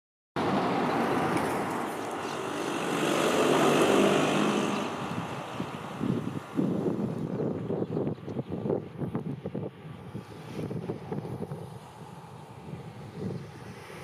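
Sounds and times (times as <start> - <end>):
fire engine driving past: 0.4 - 7.2
wind buffeting microphone: 0.4 - 14.0.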